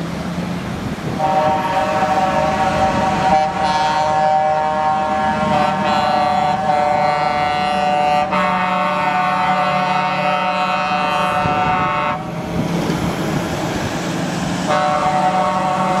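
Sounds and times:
low hum of passing trucks: 0.0 - 16.0
truck air horns chord: 1.2 - 12.3, 14.7 - 16.0.

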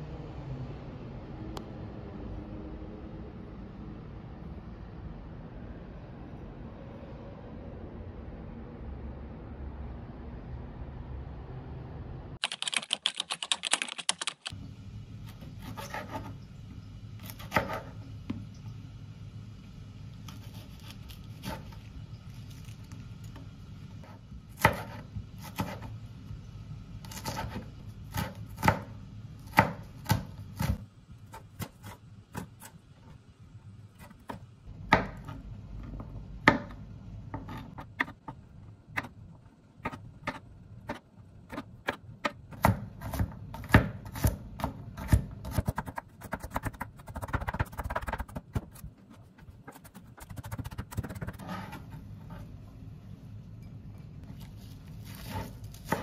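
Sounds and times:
low steady hum: 14.5 - 56.0.

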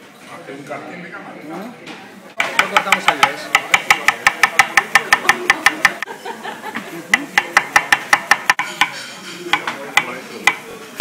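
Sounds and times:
knife chopping cucumber: 2.4 - 6.0, 7.2 - 10.7.

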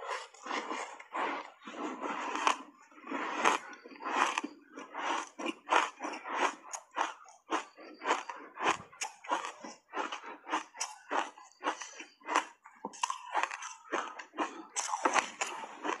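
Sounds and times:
ice being chewed with crunches: 0.0 - 16.0.

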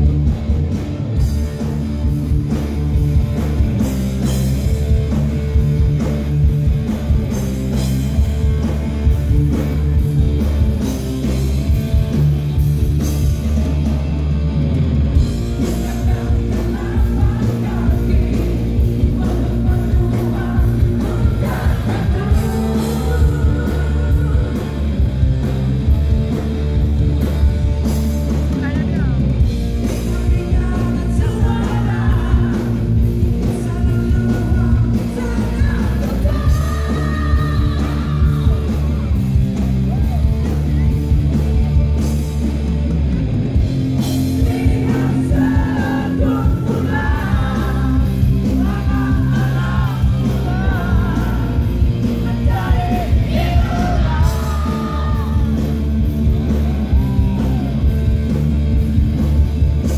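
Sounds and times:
bass guitar: 0.0 - 59.9
distorted electric guitar: 0.0 - 59.9
drum kit: 0.0 - 59.9
person singing: 15.5 - 24.8, 29.9 - 39.2, 44.4 - 55.8.

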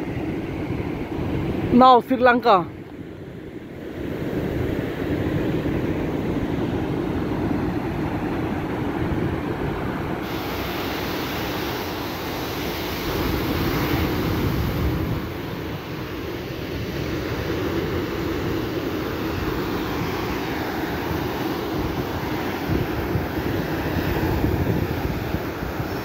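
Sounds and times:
wind buffeting microphone: 0.0 - 26.0
ocean surf breaking: 3.4 - 26.0.

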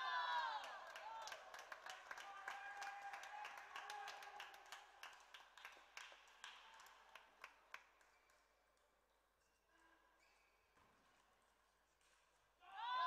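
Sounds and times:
audience clapping: 0.0 - 8.5.

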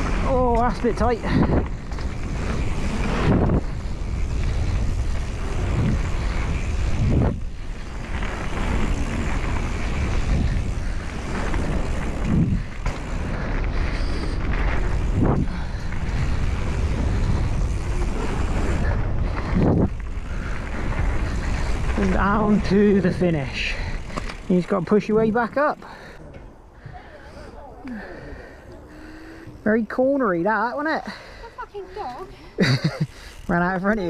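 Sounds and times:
bike thumping over bumps: 0.0 - 22.6
wind rushing over microphone: 0.0 - 24.5
bike tyres rolling on dirt: 0.0 - 34.0.

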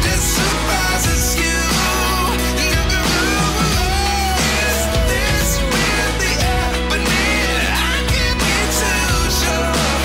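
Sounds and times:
instrumental pop-rock music: 0.0 - 10.0.

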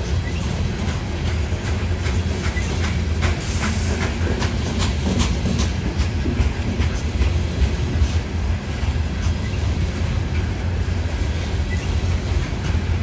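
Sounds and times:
wheels clicking over rail joints: 0.0 - 8.2
freight train rumble: 0.0 - 13.0.

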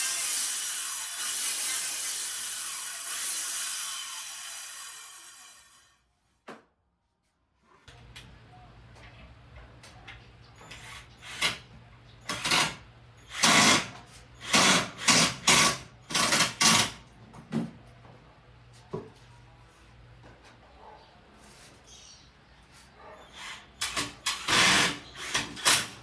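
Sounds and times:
cordless drill bursts: 0.0 - 6.0, 13.2 - 16.9, 23.9 - 26.0.

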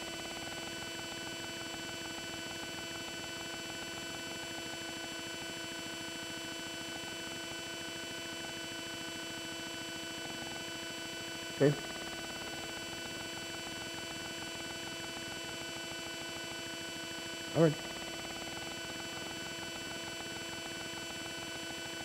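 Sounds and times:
electrical hum and whine: 16.6 - 22.0.

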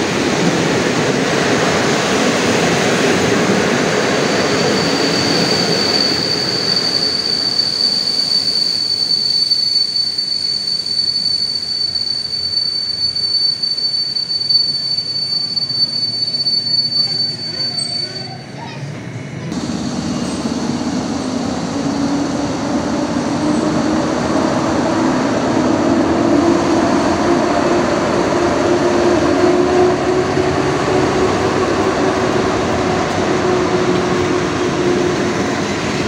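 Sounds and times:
train wheels rumbling: 0.0 - 36.0
high-pitched squeal from running gear: 4.0 - 20.8.

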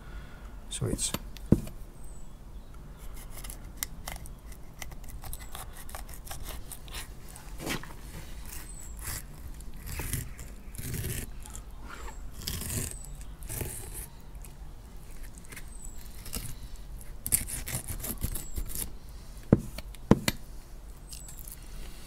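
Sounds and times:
knife scraping fish flesh: 3.1 - 7.7, 8.3 - 18.9.

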